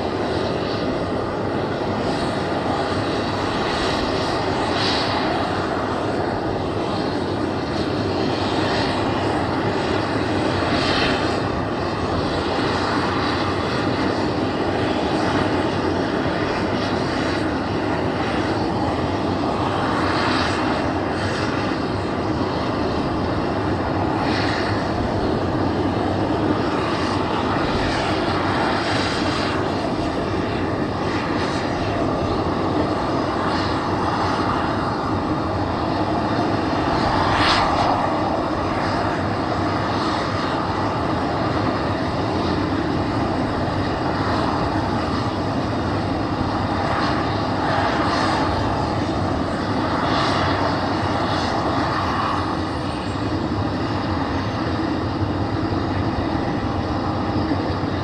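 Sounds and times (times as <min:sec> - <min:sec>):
propeller noise: 0:00.0 - 0:58.0
turboprop turbine whine: 0:00.0 - 0:58.0.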